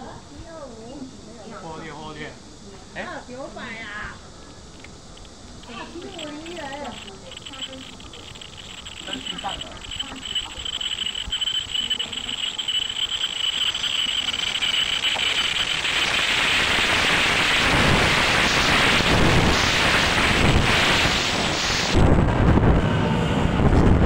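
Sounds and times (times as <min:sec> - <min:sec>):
electric train running past: 0:04.8 - 0:24.0.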